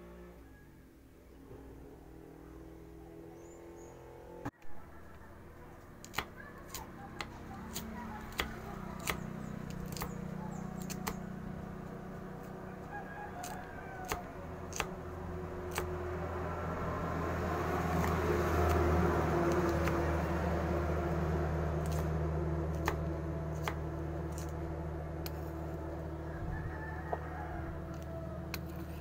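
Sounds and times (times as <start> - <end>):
knife chopping on wooden board: 6.0 - 10.2.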